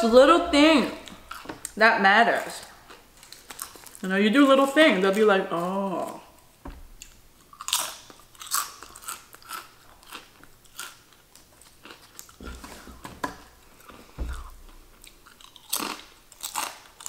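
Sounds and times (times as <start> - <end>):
potato chips crunching: 2.4 - 6.4, 7.0 - 12.4, 13.8 - 17.0.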